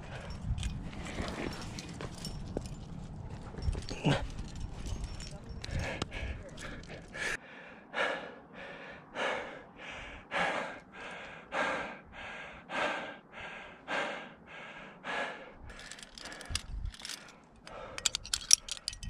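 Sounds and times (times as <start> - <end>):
climber breathing hard: 0.0 - 2.8, 3.6 - 19.0
climbing gear clicks: 0.0 - 7.4, 15.6 - 19.0.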